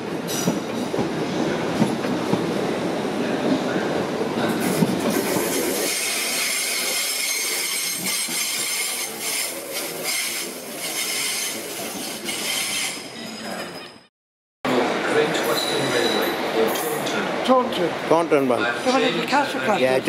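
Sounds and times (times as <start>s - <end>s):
train wheels on rails: 0.0s - 13.8s.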